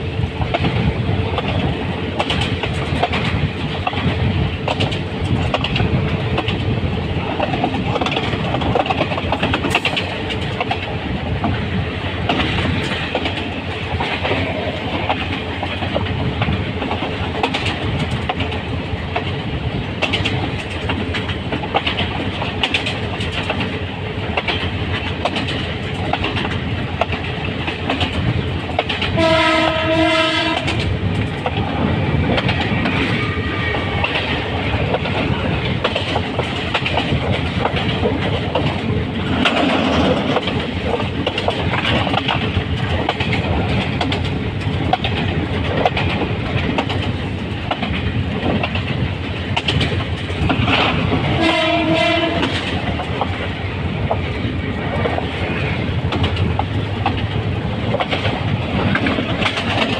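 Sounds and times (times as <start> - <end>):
clickety-clack of rail joints: 0.0 - 59.9
train wheels rumbling on rail: 0.0 - 59.9
locomotive horn: 29.2 - 30.8, 51.3 - 52.6.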